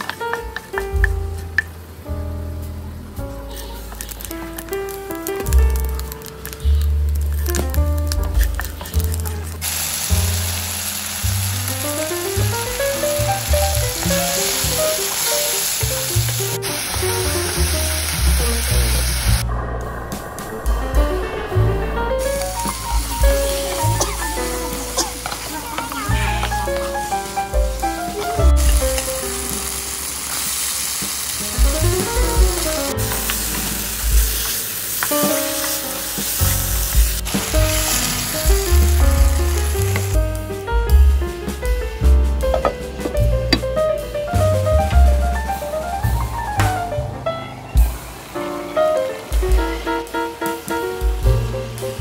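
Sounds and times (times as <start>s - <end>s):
soft background music: 0.0s - 19.3s, 20.6s - 52.0s
paste sizzling in hot oil: 3.5s - 19.4s, 22.2s - 40.2s.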